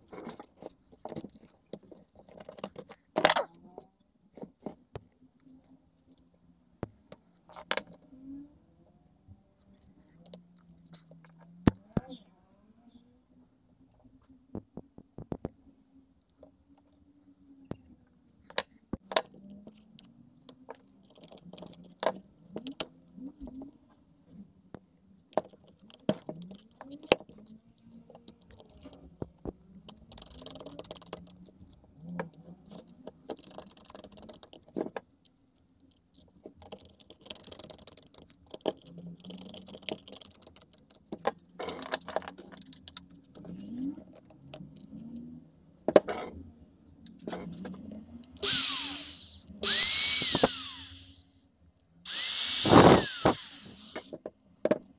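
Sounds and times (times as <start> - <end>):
screwdriver and plastic parts clicking: 29.8 - 45.0, 47.1 - 54.9
screws scraping into plastic housing: 48.4 - 51.2, 52.1 - 54.2.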